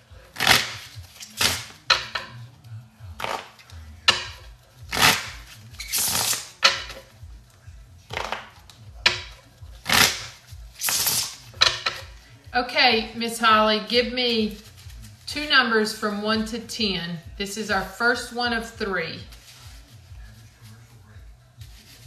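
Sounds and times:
playing cards riffle-shuffled: 9.5s - 12.2s, 14.5s - 15.3s, 19.3s - 22.0s.

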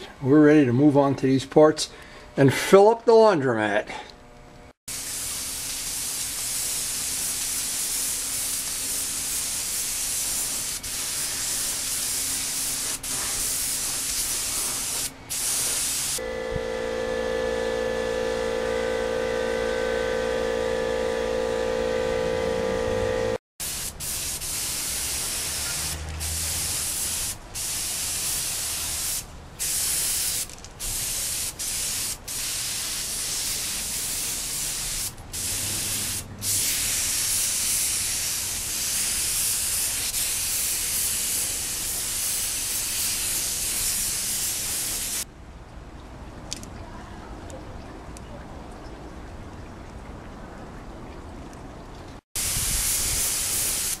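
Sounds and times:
spray gun hissing: 4.9s - 16.2s, 23.6s - 45.2s, 52.4s - 54.0s
steady low hum: 16.2s - 23.4s.

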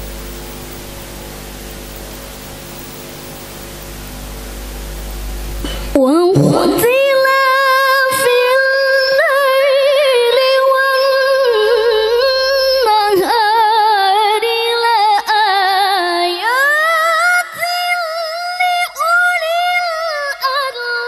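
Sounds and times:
woman reciting melodically: 5.6s - 21.0s.

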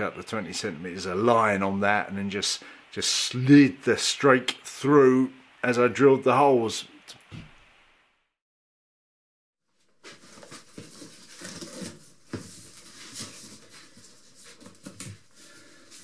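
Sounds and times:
cardboard box flaps rustling: 10.0s - 15.4s.

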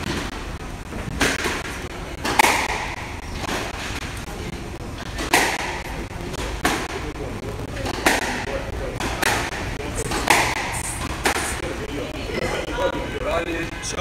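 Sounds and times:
squash ball knocks: 1.1s - 4.1s, 5.1s - 7.0s, 7.8s - 11.5s.

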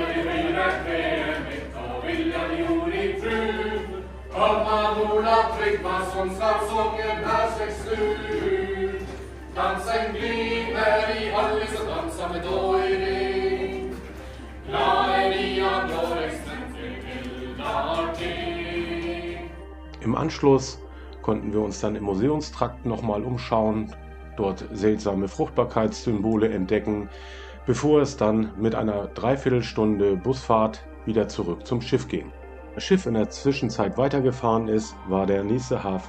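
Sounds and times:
group singing a chant-like song: 0.0s - 19.6s.

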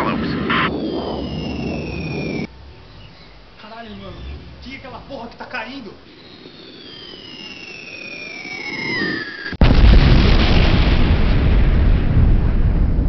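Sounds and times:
falling bomb whistle: 0.3s - 5.2s, 6.1s - 9.9s
loud explosion with rumble: 9.6s - 13.0s.

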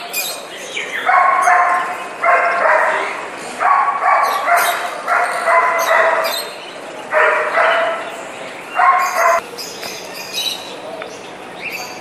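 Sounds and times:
animal calling: 0.9s - 9.4s.

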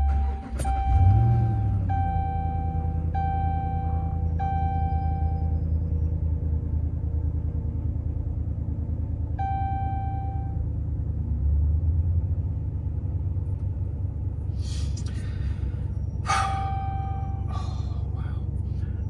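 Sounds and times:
engine idling rumble: 0.0s - 19.0s
chime tone: 16.4s - 17.5s.

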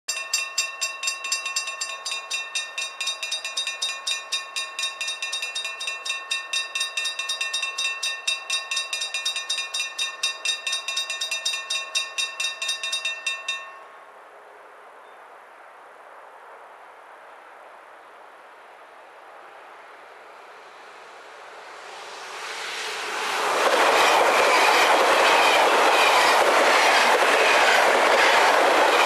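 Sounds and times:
level crossing warning bells ringing: 0.1s - 14.1s.

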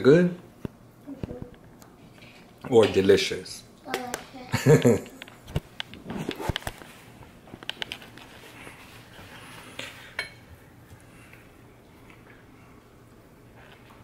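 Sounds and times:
tableware clinking on plate: 10.1s - 10.4s.

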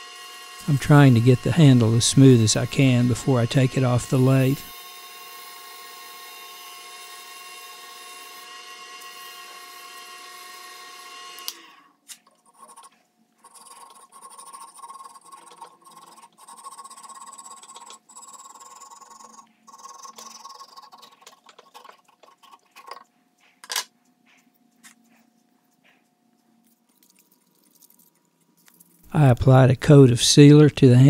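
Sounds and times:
lathe motor whine: 0.0s - 11.9s.

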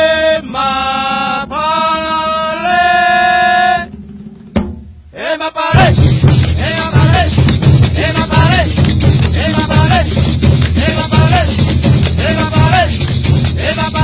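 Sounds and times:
band with busy percussion: 3.0s - 5.0s, 5.7s - 14.0s.

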